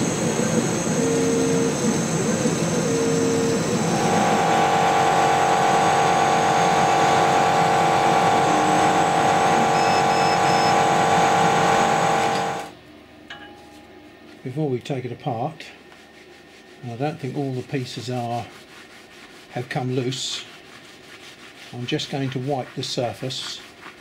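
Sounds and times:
laser cutter motor whine: 0.0 - 12.7
air and fan hiss: 0.0 - 24.0.

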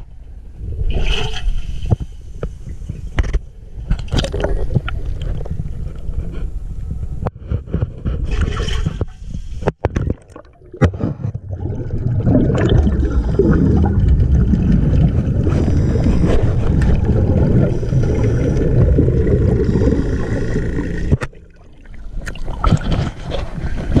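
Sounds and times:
underwater gurgling and bubbling: 10.0 - 24.0
water sloshing: 10.0 - 24.0.

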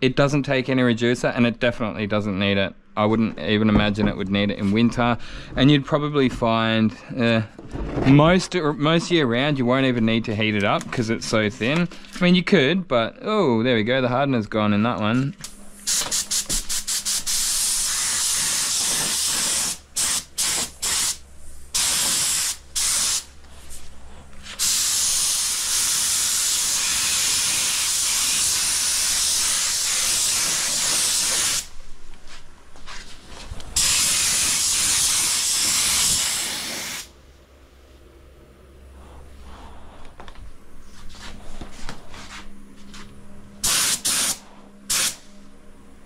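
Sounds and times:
spray gun hissing: 15.8 - 23.3, 24.4 - 31.7, 33.8 - 37.1, 43.6 - 45.3.

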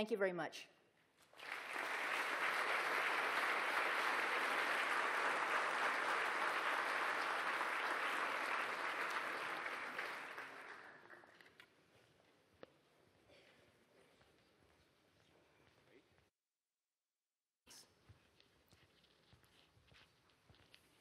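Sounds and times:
audience applauding: 1.2 - 11.4.

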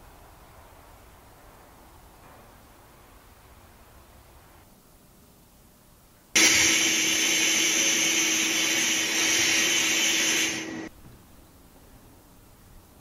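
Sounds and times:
grit blasting nozzle hiss: 6.4 - 10.9
low machine hum: 6.4 - 13.0.

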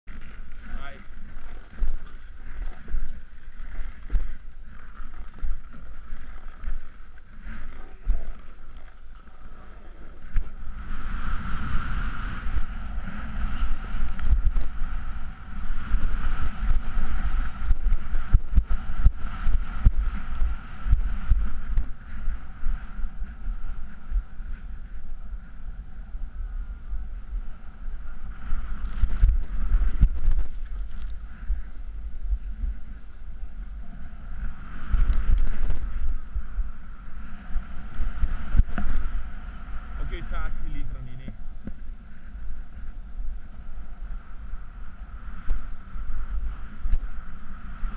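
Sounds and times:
wind buffeting microphone: 0.1 - 47.9
snowboard scraping over snow: 9.3 - 24.8, 27.6 - 33.0, 33.8 - 41.4, 43.5 - 47.9.

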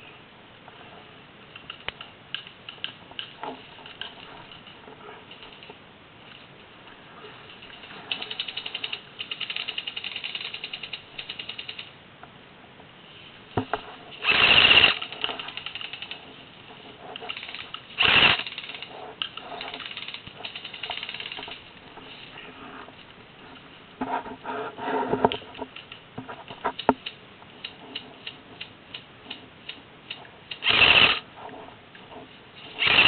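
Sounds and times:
short bursts of noise: 13.7 - 23.0, 30.5 - 31.4, 32.6 - 33.0
airsoft gun full auto fire: 14.2 - 16.0, 18.0 - 18.9, 30.6 - 31.2, 32.8 - 33.0.

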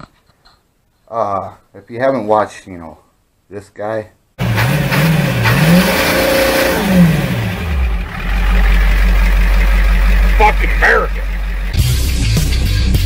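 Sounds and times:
van engine revving and idling: 4.4 - 13.0.

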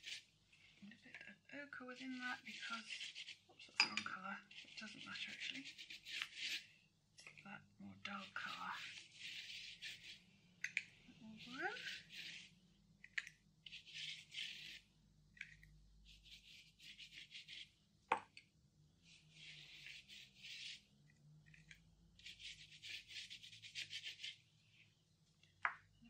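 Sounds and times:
paintbrush scrubbing textured surface: 0.0 - 0.9, 1.8 - 3.8, 4.4 - 6.8, 8.0 - 12.7, 13.6 - 17.8, 19.0 - 24.8.

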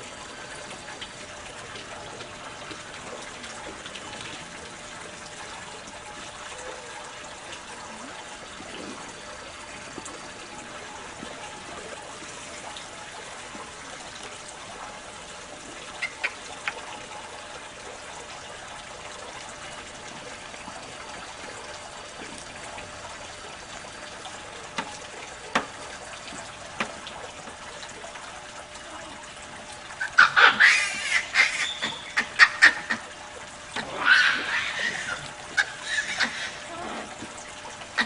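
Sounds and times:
water trickling: 0.0 - 38.0
high-pitched animal calls: 30.0 - 33.0, 33.8 - 37.1.

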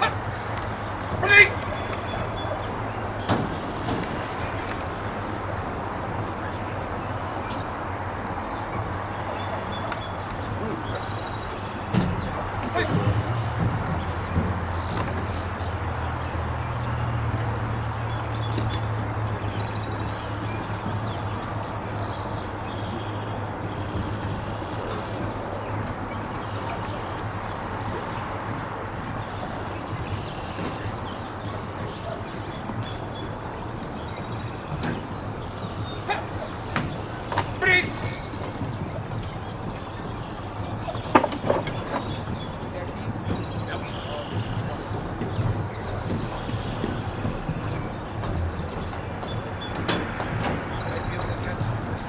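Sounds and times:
small birds chirping: 0.0 - 52.0.

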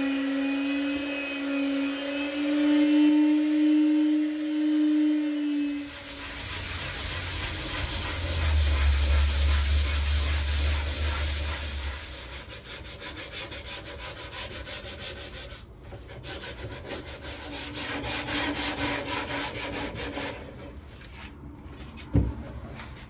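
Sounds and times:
sanding block rubbing on wood: 5.7 - 21.4.

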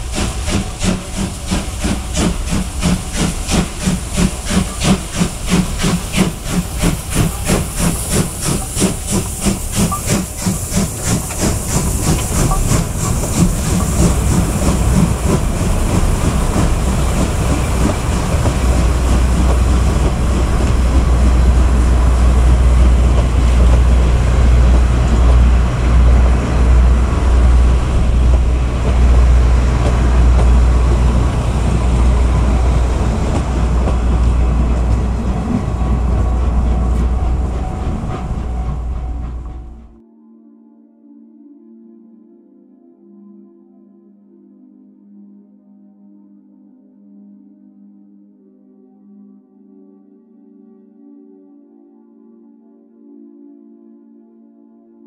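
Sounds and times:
hissing steam: 0.0 - 40.0
steam locomotive exhaust chuffs: 0.0 - 40.0.

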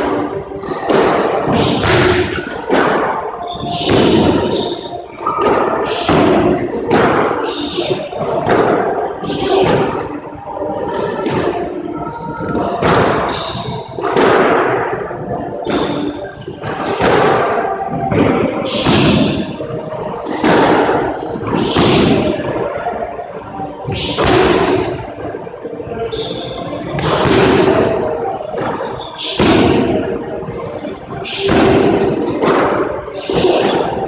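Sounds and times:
sneaker squeaks on wooden floor: 11.4 - 13.8.

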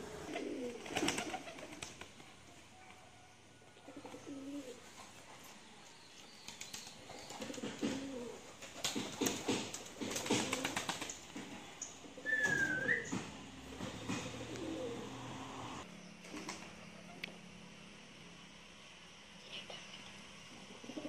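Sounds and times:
wings fluttering: 0.0 - 3.2, 6.3 - 17.4
pigeons cooing: 0.0 - 5.4, 6.6 - 17.2, 20.6 - 21.0.

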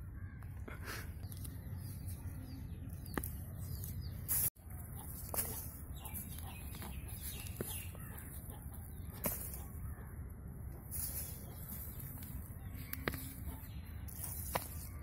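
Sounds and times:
birds calling: 0.0 - 15.0
hoe and hands scraping soil: 10.8 - 15.0.

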